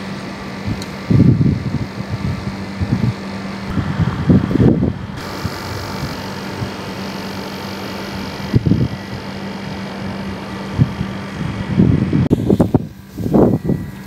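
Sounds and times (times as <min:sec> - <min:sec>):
steady mechanical hum: 0:00.0 - 0:14.0
wind buffeting microphone: 0:00.5 - 0:14.0.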